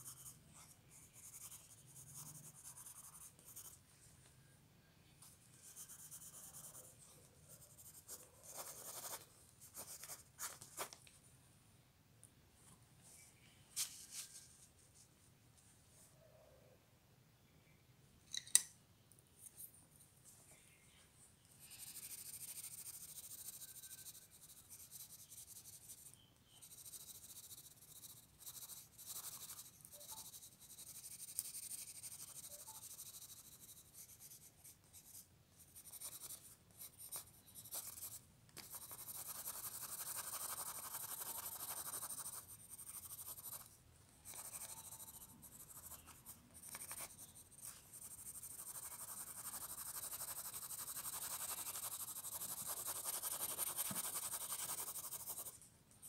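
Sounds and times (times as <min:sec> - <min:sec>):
pencil scratching on paper: 0:00.0 - 0:03.8, 0:05.5 - 0:11.0, 0:21.8 - 0:55.6.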